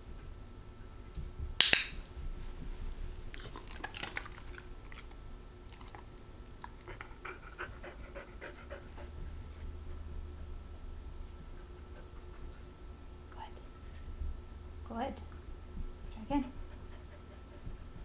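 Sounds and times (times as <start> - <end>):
dog panting: 6.6 - 10.0, 16.4 - 18.0.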